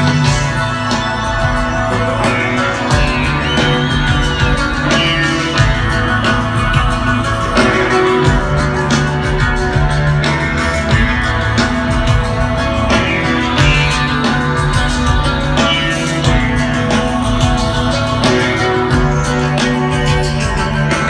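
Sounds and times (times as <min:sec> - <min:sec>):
live rock band playing: 0:00.0 - 0:21.0.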